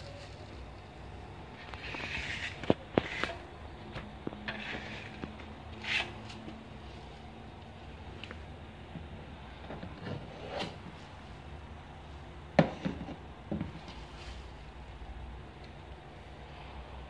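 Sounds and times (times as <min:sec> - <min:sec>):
putty knife scraping: 0:01.6 - 0:03.5, 0:04.4 - 0:06.5.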